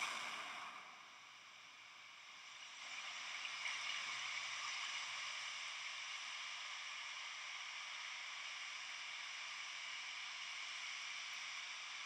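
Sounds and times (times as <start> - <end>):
rushing hiss of steam: 0.0 - 0.9.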